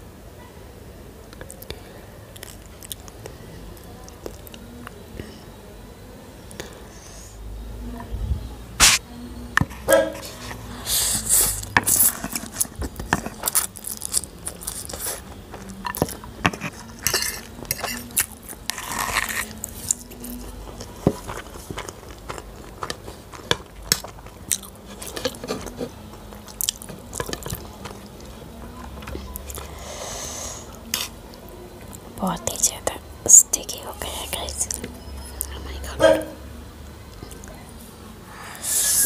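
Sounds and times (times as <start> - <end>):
noodles slurped and chewed: 10.6 - 29.9.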